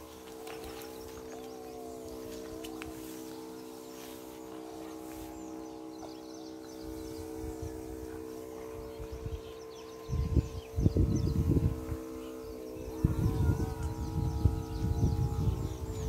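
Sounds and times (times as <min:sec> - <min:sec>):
mechanical hum: 0:00.0 - 0:16.0
low rumbles on microphone: 0:12.8 - 0:16.0.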